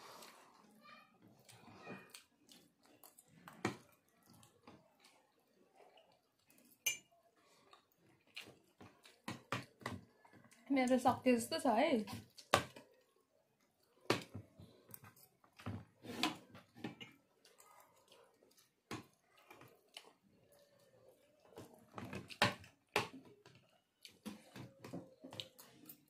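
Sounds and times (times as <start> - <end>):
forks tapping against plates: 6.8 - 7.1.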